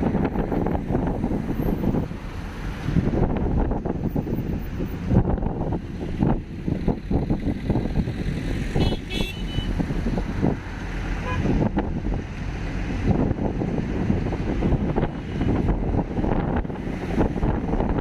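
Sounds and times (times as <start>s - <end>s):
car road rumble: 0.0s - 18.0s
wind buffeting microphone: 0.0s - 18.0s
high-pitched vehicle horn beep: 8.8s - 9.8s, 11.2s - 11.5s.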